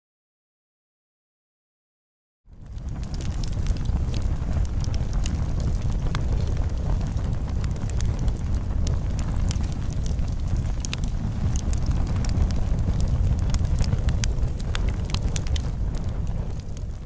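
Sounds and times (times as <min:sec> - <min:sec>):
campfire crackling and popping: 0:02.5 - 0:17.0
low fire rumble: 0:02.5 - 0:17.0.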